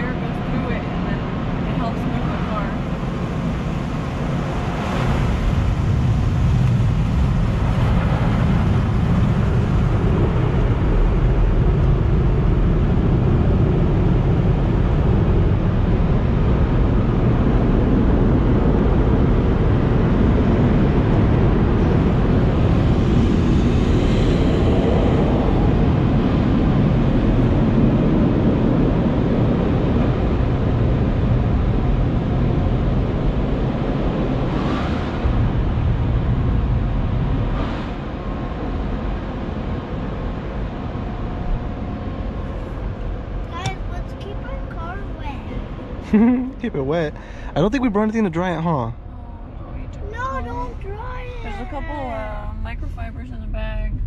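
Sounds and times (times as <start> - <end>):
car wash equipment rumbling: 0.0 - 54.0.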